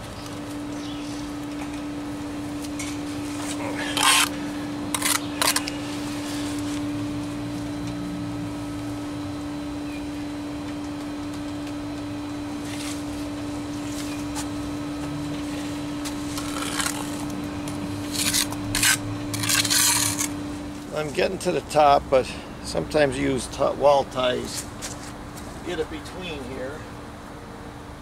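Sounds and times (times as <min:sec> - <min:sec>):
steady machine hum: 0:00.0 - 0:28.0
trowel scraping mortar: 0:03.3 - 0:05.8, 0:16.3 - 0:17.2, 0:18.0 - 0:20.3.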